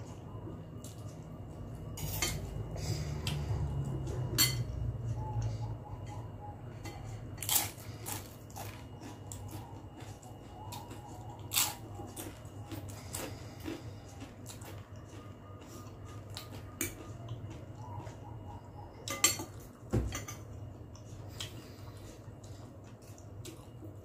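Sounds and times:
noodles being chewed: 0:07.1 - 0:19.9, 0:20.5 - 0:24.0.

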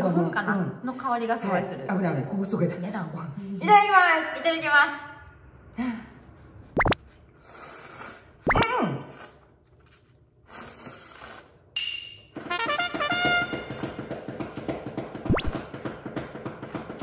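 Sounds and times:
noodle slurping: 0:06.8 - 0:11.7
stepped brass notes: 0:12.4 - 0:13.9
upbeat background music: 0:12.5 - 0:13.8.

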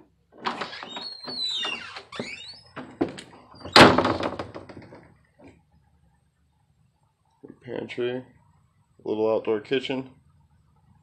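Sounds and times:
door creaking on hinges: 0:00.4 - 0:05.1.

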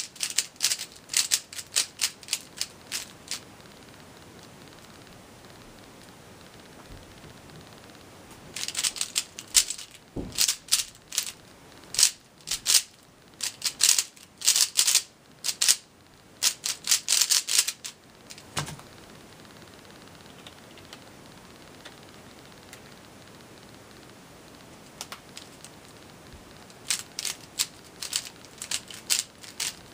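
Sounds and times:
puzzle cube clicking: 0:00.0 - 0:03.5, 0:08.6 - 0:11.4, 0:12.0 - 0:15.8, 0:16.4 - 0:18.5, 0:26.8 - 0:29.8
cube set down thump: 0:10.2 - 0:10.6.

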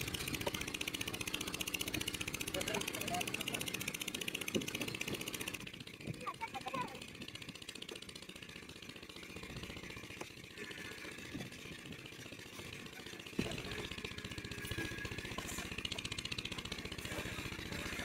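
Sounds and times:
engine running: 0:00.0 - 0:18.0.

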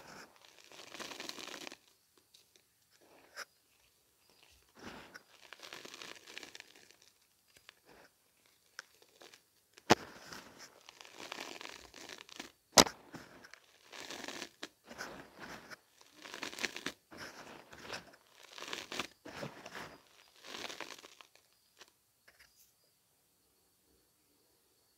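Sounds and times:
chalk powder crunching and rustling: 0:00.0 - 0:21.9.

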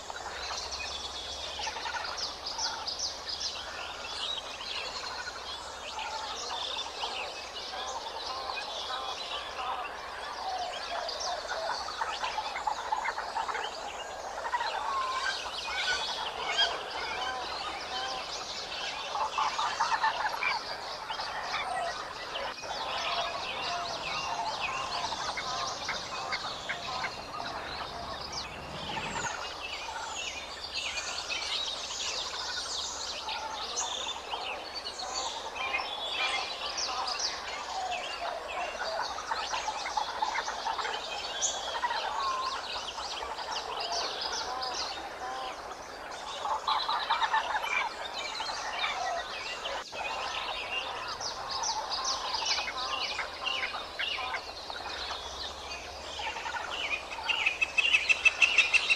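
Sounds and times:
birds chirping and calling: 0:00.0 - 0:58.9.

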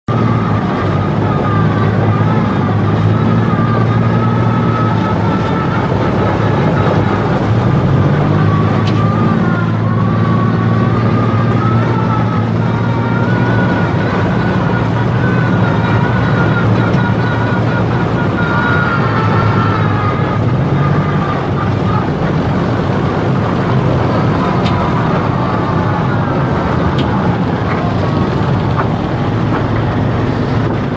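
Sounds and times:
loud engine drone: 0:00.0 - 0:30.9
high wavering whine: 0:00.1 - 0:30.9
running gear rumble: 0:00.1 - 0:30.9.

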